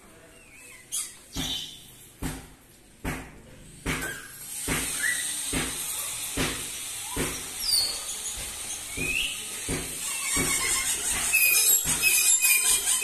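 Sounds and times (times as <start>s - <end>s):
parrots whistling: 4.1s - 5.4s, 10.0s - 13.0s.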